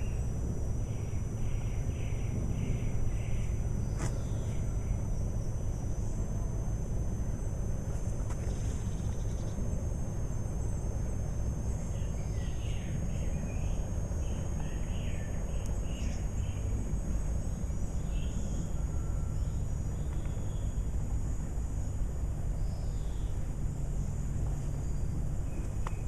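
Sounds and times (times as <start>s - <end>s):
steady low rumble: 0.0s - 26.0s
small bird chirping: 8.3s - 9.8s, 11.3s - 20.9s.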